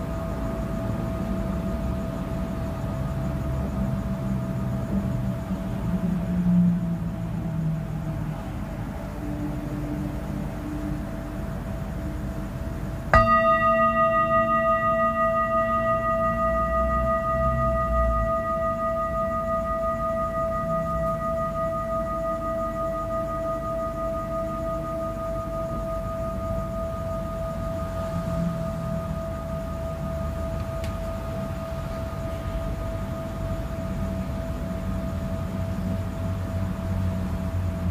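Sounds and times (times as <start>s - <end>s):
singing bowl ringing: 0.0s - 6.4s, 13.1s - 37.9s
low rumbling noise: 0.0s - 37.9s.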